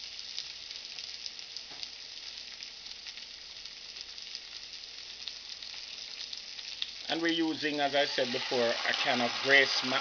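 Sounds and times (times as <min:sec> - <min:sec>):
vegetables sizzling in hot oil: 0:00.0 - 0:10.0.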